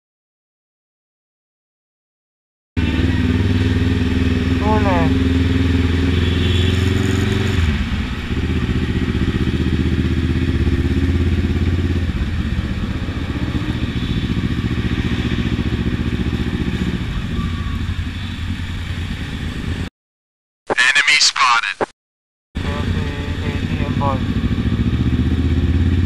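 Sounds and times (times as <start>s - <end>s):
motorcycle engine running: 2.8s - 19.9s, 22.6s - 26.0s.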